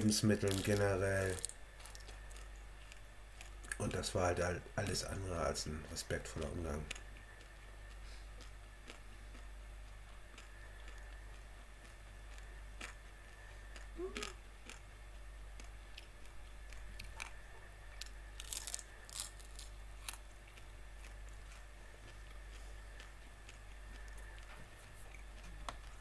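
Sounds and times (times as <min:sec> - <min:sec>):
chewing crunchy prawn shells: 0:00.1 - 0:03.9, 0:06.3 - 0:26.0
person humming: 0:13.9 - 0:14.4.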